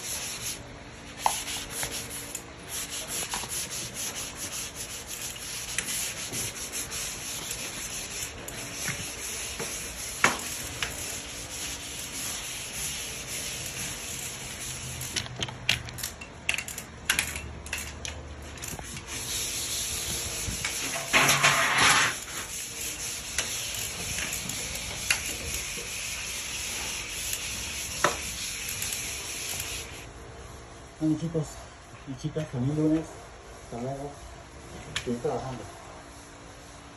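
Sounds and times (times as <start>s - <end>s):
sanding block rasping: 1.2s - 15.1s, 19.0s - 30.0s.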